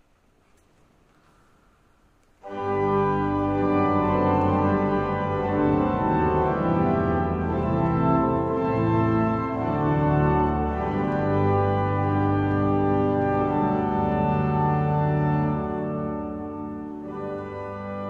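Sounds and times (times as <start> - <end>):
pipe organ chords: 2.4 - 18.0.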